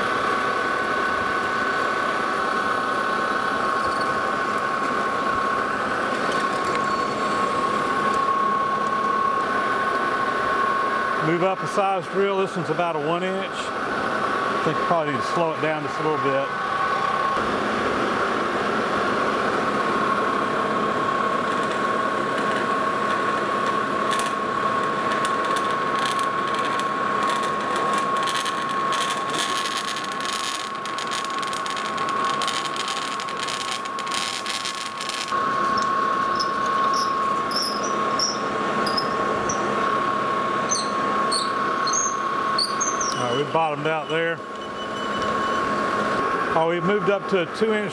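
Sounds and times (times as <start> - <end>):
lathe high whine: 0.0 - 47.9
drill grinding metal: 25.2 - 39.8, 40.6 - 44.2.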